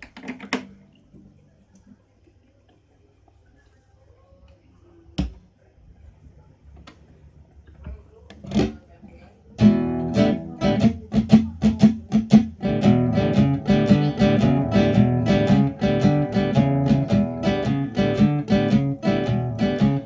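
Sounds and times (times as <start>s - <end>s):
fingerstyle classical guitar: 8.4s - 8.9s, 9.6s - 20.0s.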